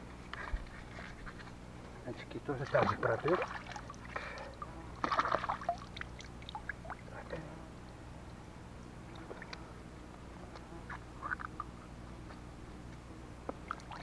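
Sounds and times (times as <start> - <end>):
water splash: 2.6 - 4.2, 5.0 - 7.0
water dripping: 2.6 - 7.1, 13.6 - 14.0.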